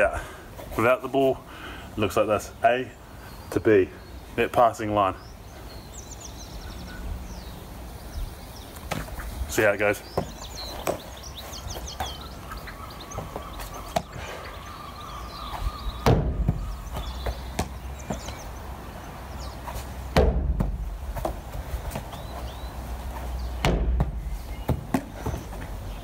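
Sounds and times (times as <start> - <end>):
faint birds chirping: 0.0 - 26.0
ball thudding against wooden wall: 16.0 - 18.4, 20.1 - 22.1, 23.6 - 25.6.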